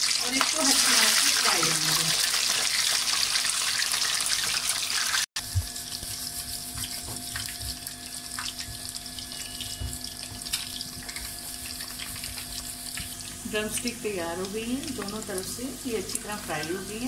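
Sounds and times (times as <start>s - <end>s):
oil sizzling: 0.0s - 17.0s
low steady hum: 5.4s - 17.0s
oil pops and crackles: 10.3s - 11.3s.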